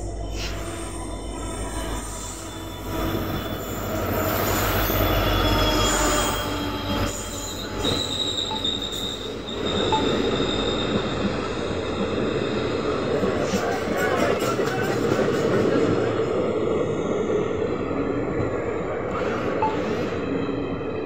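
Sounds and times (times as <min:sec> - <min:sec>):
diesel locomotive engine droning: 0:00.0 - 0:21.0
high wheel squeal: 0:00.3 - 0:14.9.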